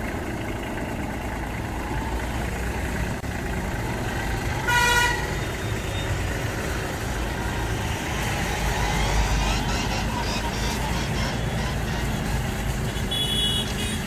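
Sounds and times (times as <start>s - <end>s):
tractor diesel engine running: 0.0s - 14.0s
vehicle horn toot: 4.6s - 6.1s, 12.9s - 14.0s.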